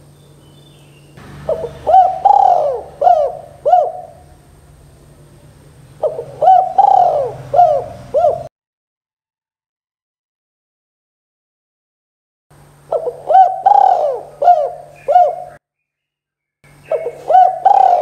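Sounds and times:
dove cooing: 0:01.4 - 0:04.4, 0:05.9 - 0:08.5, 0:12.9 - 0:15.6, 0:16.9 - 0:18.0.

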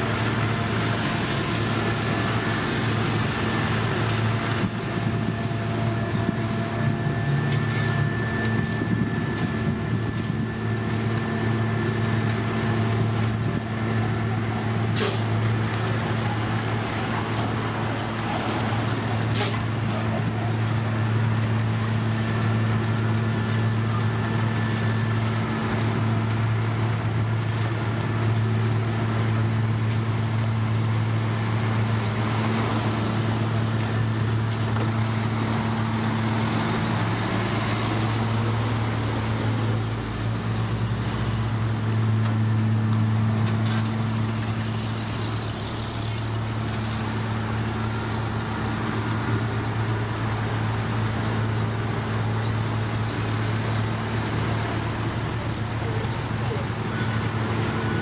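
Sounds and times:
diesel truck engines humming: 0:00.0 - 0:58.0
traffic noise: 0:00.0 - 0:58.0.

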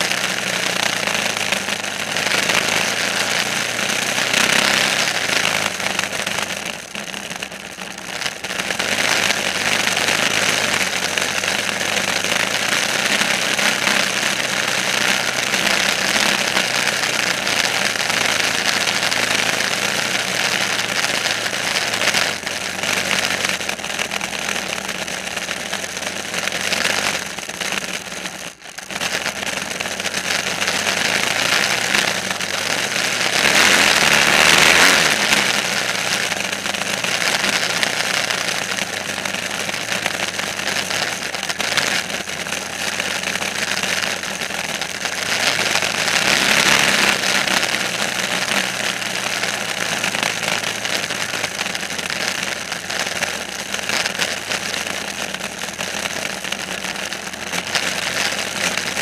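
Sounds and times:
engine running: 0:00.0 - 0:59.0.

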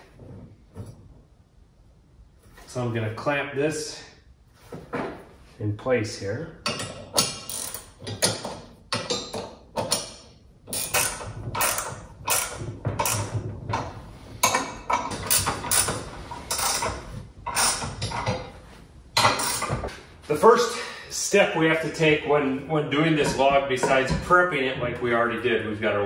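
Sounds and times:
metallic ratcheting of clamps: 0:06.6 - 0:18.5, 0:19.2 - 0:19.9.

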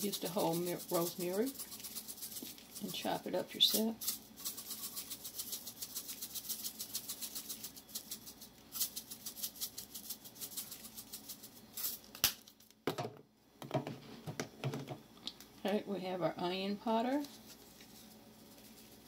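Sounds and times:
spice jar rattling: 0:00.0 - 0:12.2.

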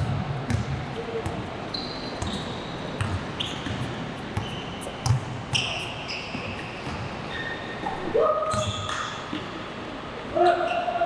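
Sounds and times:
basketball bouncing on court: 0:00.0 - 0:01.5, 0:02.1 - 0:07.2, 0:08.5 - 0:09.1
sneakers squeaking on floor: 0:00.5 - 0:09.4.

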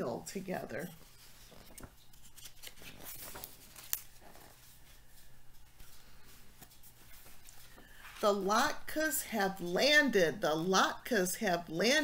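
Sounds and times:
paper pages rustling: 0:01.0 - 0:08.2.

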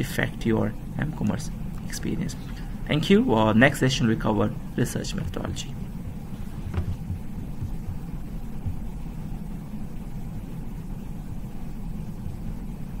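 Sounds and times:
low background rumble: 0:00.0 - 0:13.0
low thumps: 0:05.2 - 0:09.5.

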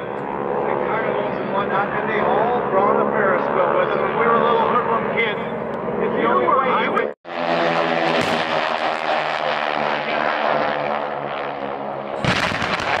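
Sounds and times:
propeller planes droning overhead: 0:00.0 - 0:13.0
loud pyrotechnic blast: 0:07.3 - 0:09.5, 0:12.1 - 0:13.0.

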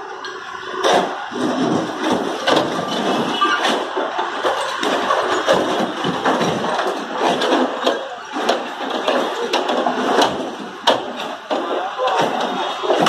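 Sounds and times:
diesel engine running: 0:00.0 - 0:13.0
loader bucket knocking: 0:00.8 - 0:13.0.

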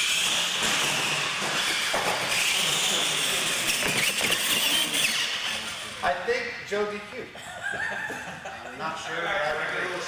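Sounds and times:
tyre noise on concrete: 0:00.0 - 0:05.4
high whine of electric motors: 0:00.0 - 0:08.4.

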